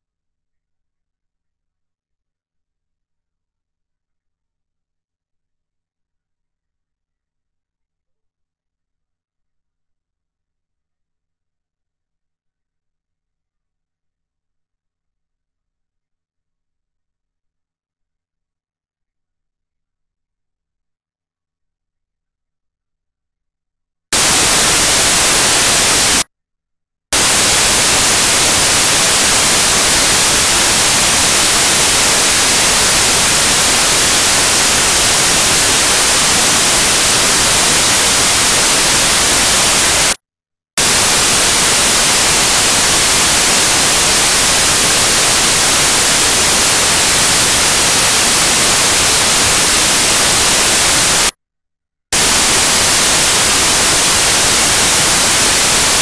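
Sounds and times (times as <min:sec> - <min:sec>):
white noise static hiss: 0:24.2 - 0:26.3, 0:27.2 - 0:40.2, 0:40.8 - 0:51.4, 0:52.2 - 0:56.0.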